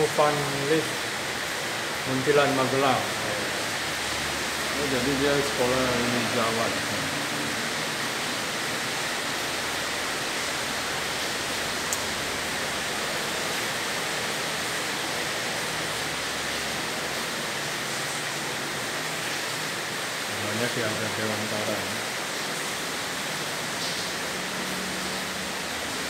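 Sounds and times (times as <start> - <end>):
rain heard from indoors: 0.0 - 26.0.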